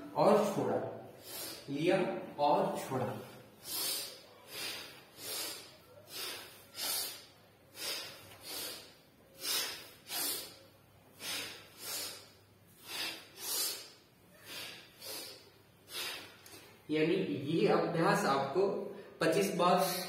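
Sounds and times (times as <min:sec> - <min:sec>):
man breathing hard through nose: 0:01.1 - 0:01.7, 0:03.6 - 0:16.8.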